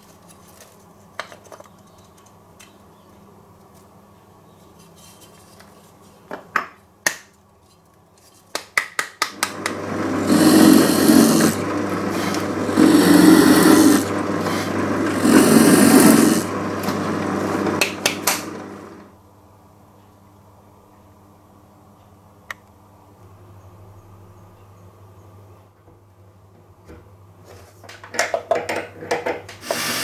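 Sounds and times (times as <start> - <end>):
drill press motor humming: 9.4 - 19.1, 29.6 - 30.0
drill bit rasping into wood: 9.7 - 18.9, 29.6 - 30.0.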